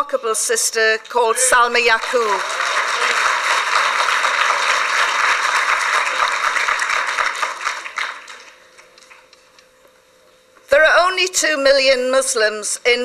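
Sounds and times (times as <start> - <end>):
audience applauding: 1.0 - 9.3.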